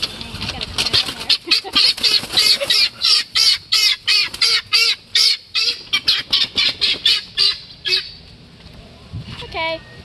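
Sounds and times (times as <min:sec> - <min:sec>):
guineafowl calling: 0:00.8 - 0:08.3.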